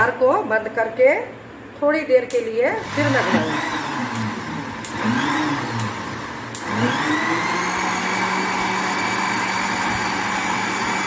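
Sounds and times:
mixer grinder motor running: 2.8s - 11.0s
mixer click: 3.3s - 5.1s, 5.7s - 6.9s.

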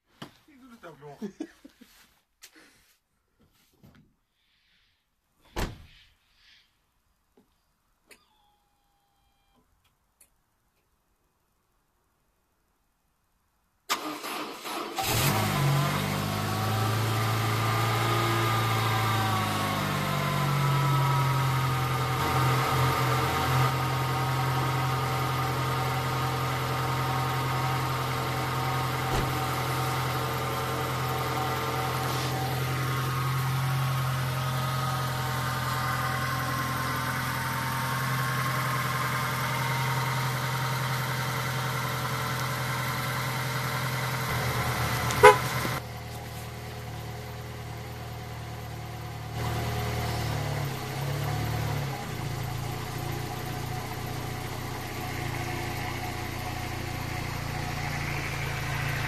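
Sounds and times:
car engine idling: 15.1s - 59.0s.

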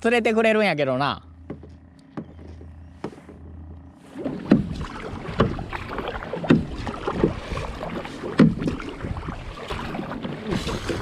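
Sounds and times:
paddle strokes splashing: 4.0s - 11.0s
water running off paddle: 4.0s - 11.0s.

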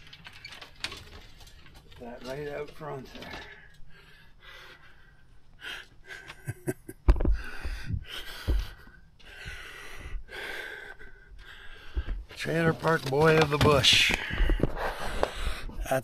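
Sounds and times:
man breathing heavily: 3.2s - 12.4s, 13.9s - 15.9s.

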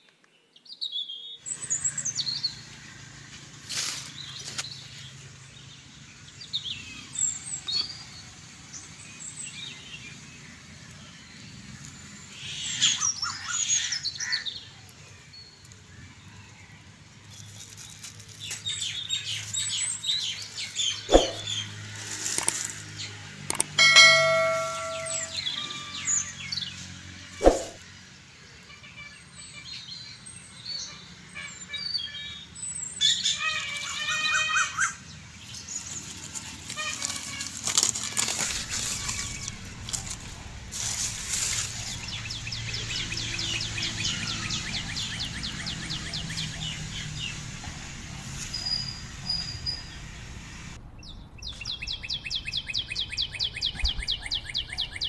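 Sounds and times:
birds chirping: 18.4s - 28.0s, 29.2s - 55.0s
ringing chime: 23.8s - 25.9s.

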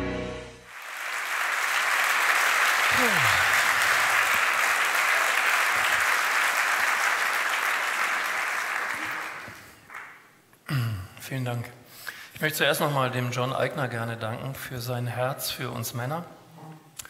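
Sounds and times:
large audience applauding: 0.6s - 10.4s
call from the crowd: 2.7s - 4.4s.

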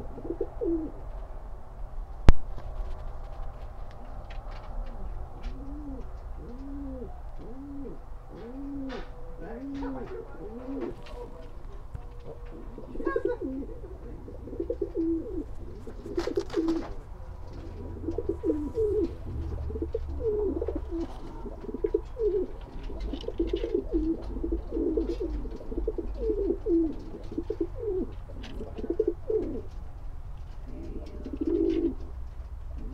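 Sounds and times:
pigeons cooing: 0.0s - 1.1s, 4.2s - 32.9s.

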